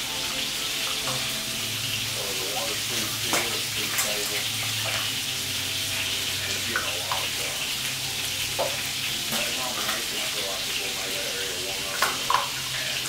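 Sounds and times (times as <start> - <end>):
water splashing into metal bowl: 2.2 - 5.2, 6.4 - 7.9, 11.8 - 13.0.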